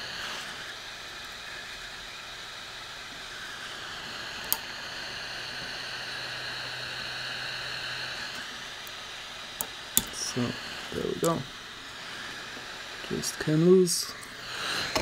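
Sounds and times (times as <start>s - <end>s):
hot air station blowing hiss: 0.0s - 15.0s.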